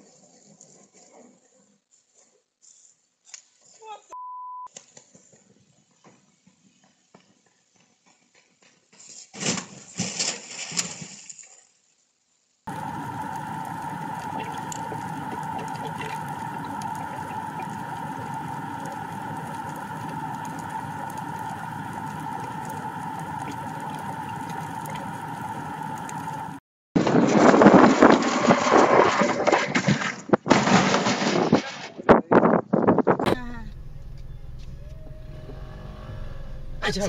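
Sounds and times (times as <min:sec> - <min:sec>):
high whine: 0:12.7 - 0:26.6, 0:33.3 - 0:37.0
underwater hum and hiss: 0:12.7 - 0:26.6
rough crackling noise: 0:12.7 - 0:32.3.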